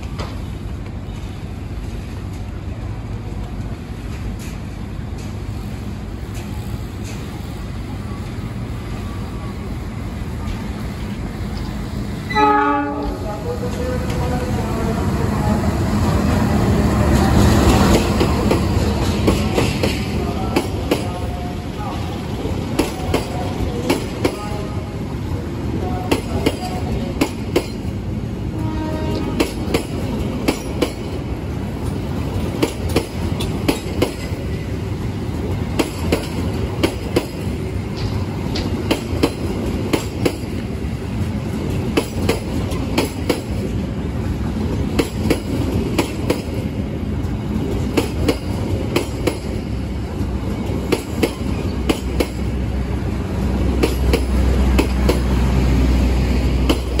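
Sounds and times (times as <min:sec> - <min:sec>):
train rumble: 0:00.0 - 0:57.0
train wheels clacking over rail joints: 0:04.1 - 0:07.5, 0:17.2 - 0:21.2, 0:26.1 - 0:28.0, 0:28.8 - 0:31.2, 0:31.8 - 0:34.5, 0:35.5 - 0:40.7, 0:41.5 - 0:43.8, 0:44.8 - 0:52.5, 0:53.7 - 0:55.3, 0:56.5 - 0:57.0.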